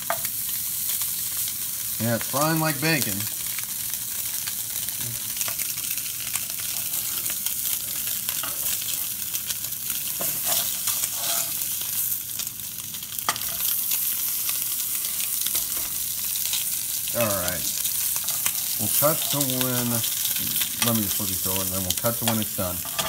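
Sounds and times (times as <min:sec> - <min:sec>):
meat sizzling in a frying pan: 0:00.0 - 0:23.0
metal spatula scraping pan: 0:10.1 - 0:11.8, 0:18.0 - 0:21.0, 0:22.2 - 0:23.0.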